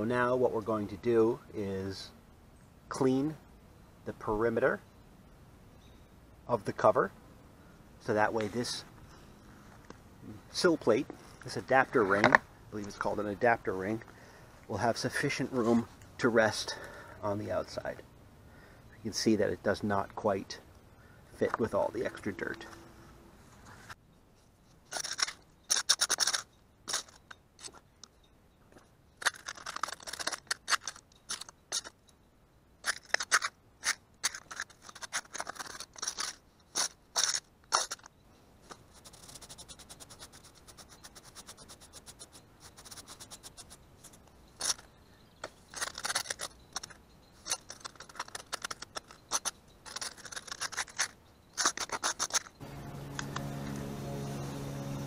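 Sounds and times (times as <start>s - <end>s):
hand tool scraping concrete: 32.9s - 38.1s, 45.7s - 52.6s.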